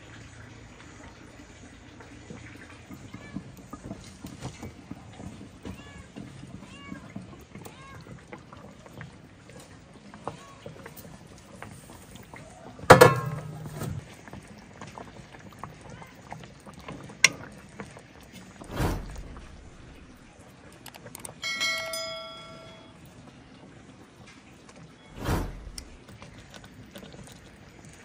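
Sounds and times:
metallic clang ringing: 0:12.9 - 0:14.0, 0:21.4 - 0:23.0
handling clatter and knocks: 0:12.9 - 0:14.1
low thud: 0:18.6 - 0:20.2, 0:25.2 - 0:26.0.

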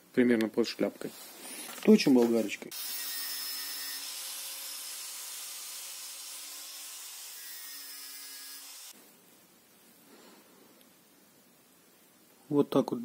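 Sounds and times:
angle grinder grinding steel: 0:02.7 - 0:09.0.

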